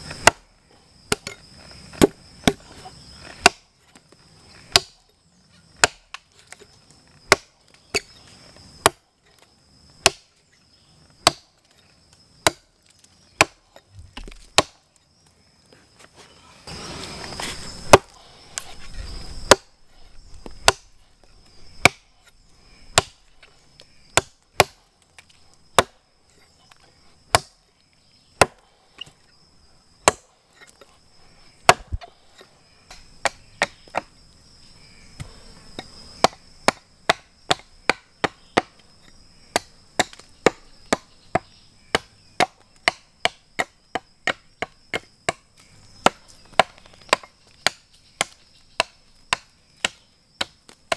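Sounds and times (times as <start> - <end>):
hatchet chopping into log: 0.1 - 0.4, 1.1 - 2.6, 3.4 - 3.7, 4.7 - 5.0, 5.8 - 6.2, 7.3 - 8.1, 8.8 - 9.0, 10.0 - 10.3, 11.2 - 11.5, 12.4 - 12.7, 13.4 - 14.8, 17.9 - 18.2, 19.4 - 19.7, 20.4 - 20.9, 21.8 - 22.1, 22.9 - 23.2, 24.2 - 24.8, 25.8 - 26.0, 27.3 - 27.6, 30.0 - 30.3, 31.7 - 32.1, 32.9 - 34.1, 35.2 - 38.7, 39.5 - 45.4, 46.0 - 50.9.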